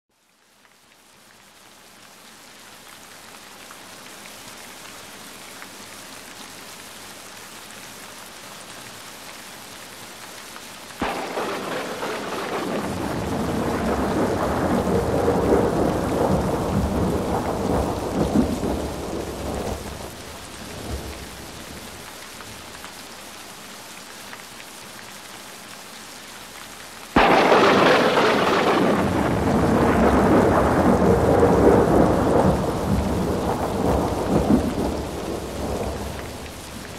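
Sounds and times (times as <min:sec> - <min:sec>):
steady rain: 0:00.1 - 0:36.9
thunder rumbling: 0:11.0 - 0:22.0, 0:27.2 - 0:36.9.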